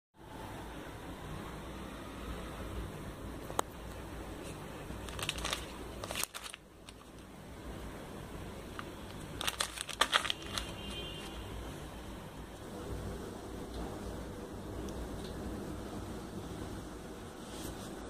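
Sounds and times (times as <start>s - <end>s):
low background noise: 0.2s - 18.0s
plastic sachet crinkling: 4.4s - 7.3s, 8.6s - 11.4s.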